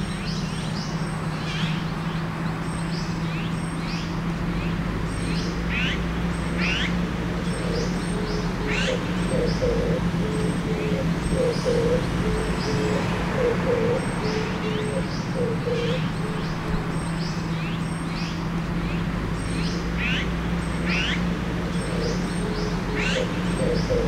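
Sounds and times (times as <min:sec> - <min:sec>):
low hum of traffic: 0:00.0 - 0:24.0
dove cooing: 0:06.6 - 0:17.0, 0:20.9 - 0:24.0.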